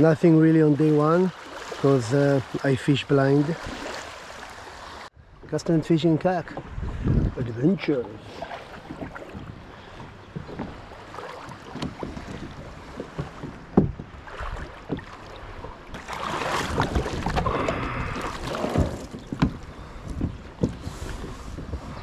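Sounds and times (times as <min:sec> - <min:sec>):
shallow water splashing: 0:00.0 - 0:22.0
knocks against plastic hull: 0:11.7 - 0:14.1.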